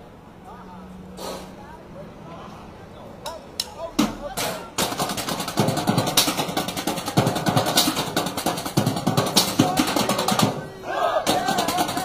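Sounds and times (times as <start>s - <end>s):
drumming on metal trash cans: 4.0s - 10.6s, 11.2s - 12.0s.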